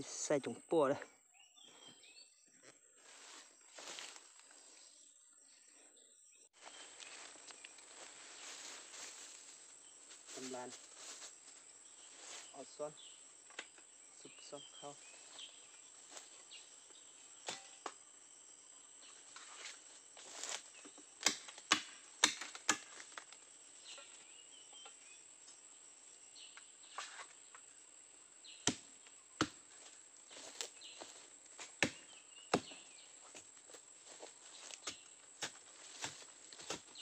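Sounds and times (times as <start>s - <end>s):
insects droning: 0.0s - 37.0s
hand tool chopping into earth: 21.2s - 23.1s, 28.6s - 29.6s, 31.8s - 32.8s.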